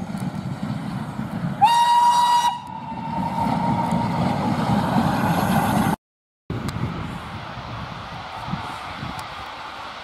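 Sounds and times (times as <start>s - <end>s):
steam locomotive whistle: 1.6s - 4.3s.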